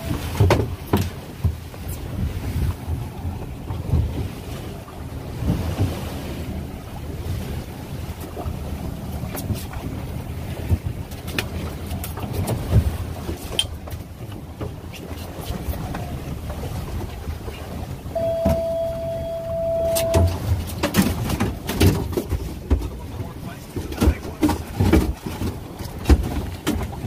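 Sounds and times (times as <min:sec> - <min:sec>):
outboard motors running: 0:00.0 - 0:27.0
rushing water: 0:00.0 - 0:27.0
steady tone: 0:18.1 - 0:20.5.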